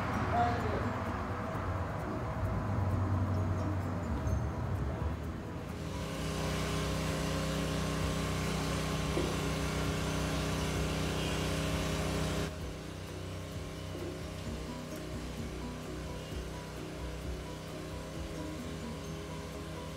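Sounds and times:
machine running with low hum: 5.7s - 19.9s.

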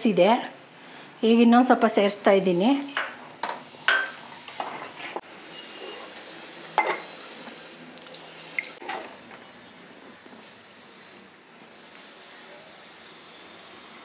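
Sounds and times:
metal ladle scraping a pot: 4.6s - 7.1s.

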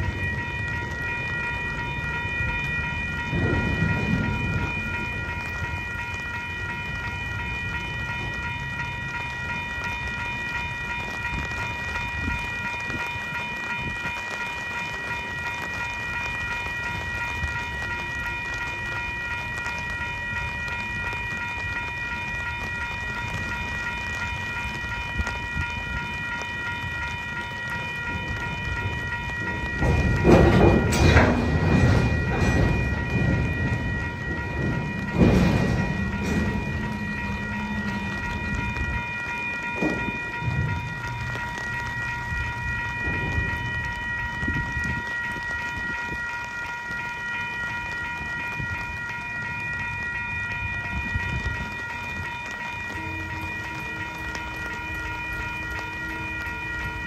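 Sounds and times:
freight cars rumbling: 0.0s - 47.0s
railroad crossing bell ringing: 0.0s - 57.0s.

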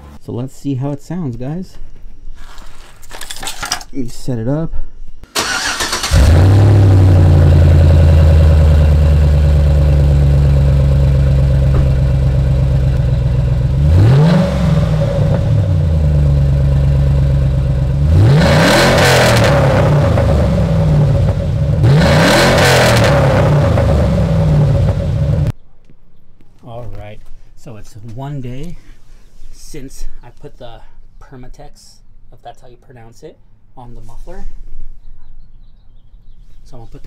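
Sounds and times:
truck engine idling and revving: 5.4s - 25.6s.

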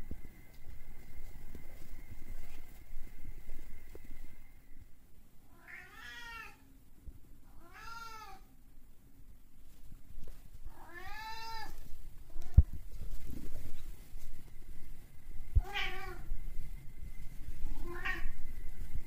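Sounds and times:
cat meowing: 5.5s - 6.6s, 7.6s - 8.5s, 10.7s - 11.8s, 15.6s - 16.3s, 17.7s - 18.4s.

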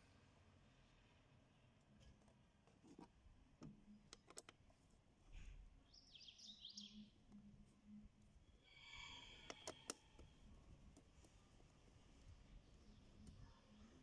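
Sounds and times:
nut driver clicking and tapping: 3.6s - 4.6s, 9.5s - 10.3s
bird chirping: 5.8s - 8.0s.

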